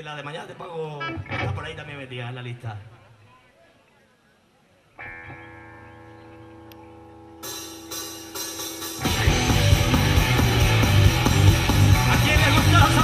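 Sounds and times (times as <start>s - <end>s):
rock band playing: 1.0s - 1.7s, 5.0s - 13.0s
electric guitar chord ringing: 5.0s - 12.1s
drum and cymbal hits: 7.5s - 13.0s.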